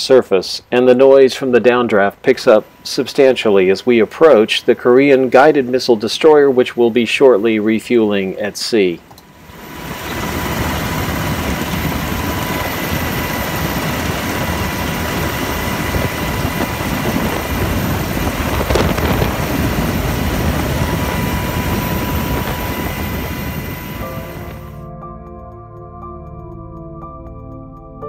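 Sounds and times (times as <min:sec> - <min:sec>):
thin steady whine: 0:00.0 - 0:24.9
helicopter rotor and engine: 0:09.1 - 0:24.9.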